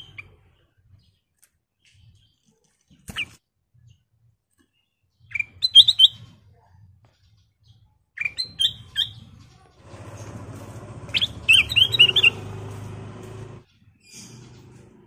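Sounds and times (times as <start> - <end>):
bird singing bright chirps: 7.1 - 15.0.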